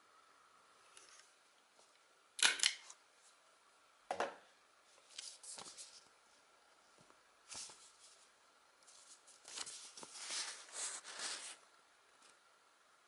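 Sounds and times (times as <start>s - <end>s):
paper rustling and crinkling: 5.0s - 6.0s, 7.5s - 11.6s.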